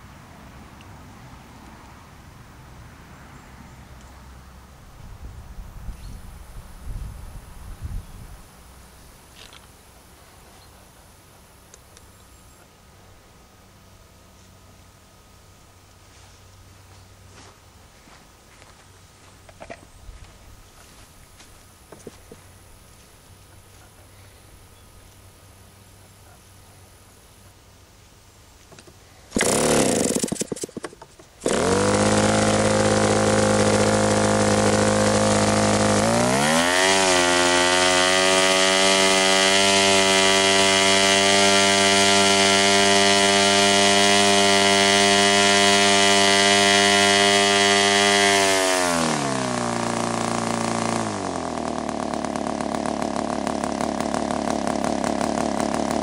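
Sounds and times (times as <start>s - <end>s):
model two-stroke engine running: 29.3s - 56.0s.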